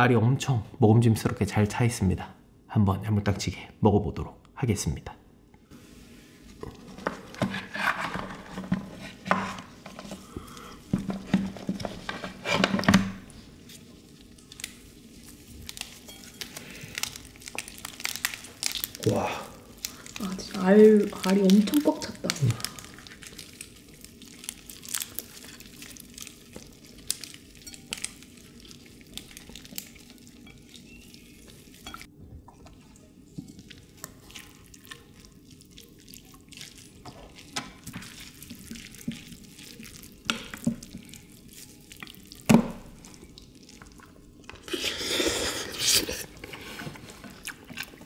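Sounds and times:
wet squishing of raw crab: 13.2s - 48.0s.

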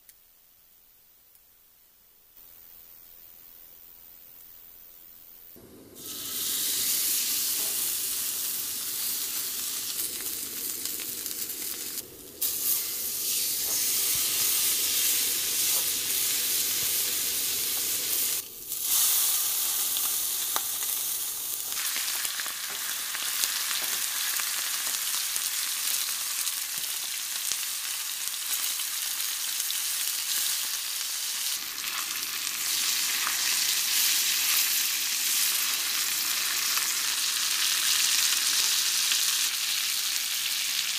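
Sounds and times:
steak sizzling in a skillet: 5.9s - 40.9s.

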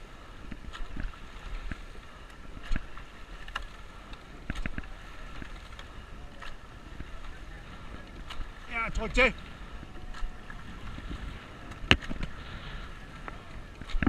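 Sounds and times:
water rushing along hull: 0.0s - 14.0s
wind on microphone: 0.0s - 14.0s
oars knocking in oarlocks: 2.6s - 7.4s, 8.1s - 12.6s.

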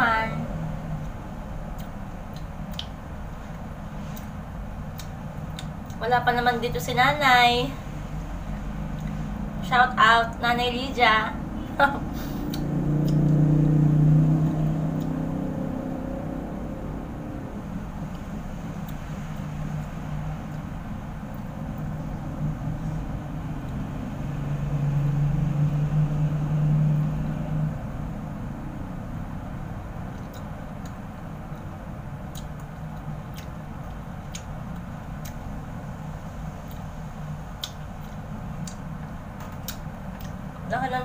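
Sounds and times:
low mechanical hum: 0.0s - 41.0s
wet mouth clicks and smacks: 1.0s - 6.0s, 8.6s - 9.2s, 12.4s - 13.4s, 30.1s - 31.7s, 32.3s - 35.5s, 37.6s - 40.7s.

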